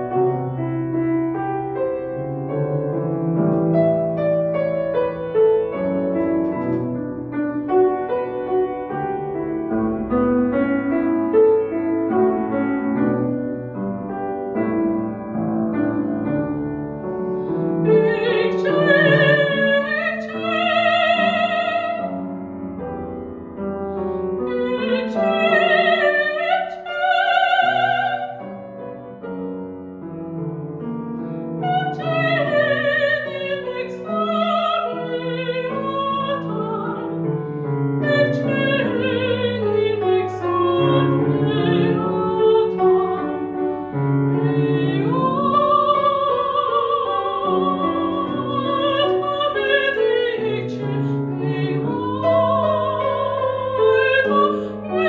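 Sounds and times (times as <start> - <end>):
grand piano: 0.0 - 55.0
soprano singing operatically: 17.8 - 22.2, 24.4 - 28.6, 31.6 - 37.2, 38.0 - 43.6, 44.2 - 55.0.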